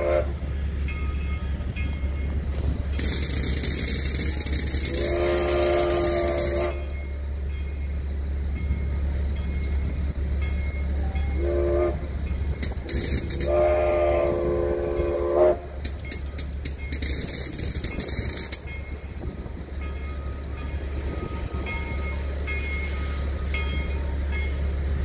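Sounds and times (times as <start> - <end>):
steam locomotive whistle: 0.0 - 0.4, 3.0 - 7.1, 11.0 - 16.2
steam hissing bursts: 3.0 - 7.0.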